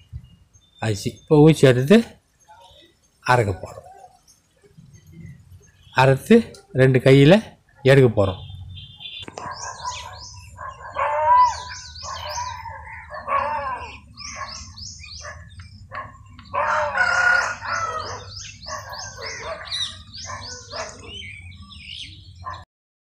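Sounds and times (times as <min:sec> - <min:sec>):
small birds chirping: 0:00.0 - 0:22.6
chickens calling: 0:01.7 - 0:22.6
rooster crowing: 0:10.7 - 0:14.1, 0:16.5 - 0:19.8.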